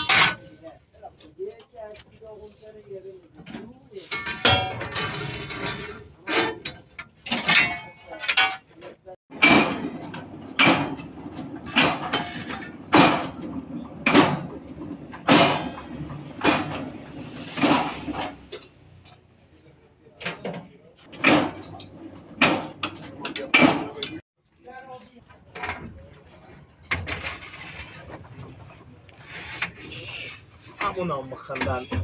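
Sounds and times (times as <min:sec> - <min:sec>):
metallic clanks of machine: 0:04.1 - 0:08.7, 0:09.3 - 0:18.8, 0:20.2 - 0:24.2.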